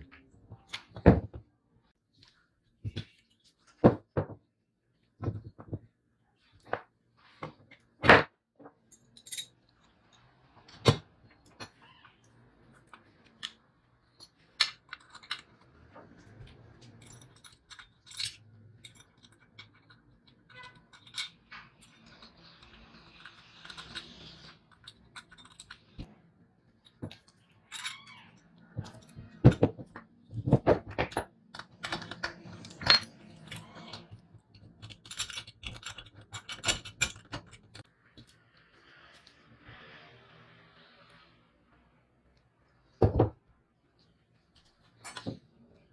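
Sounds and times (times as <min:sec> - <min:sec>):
small metal parts clinking: 0:12.7 - 0:26.1, 0:26.8 - 0:29.7, 0:30.4 - 0:37.8.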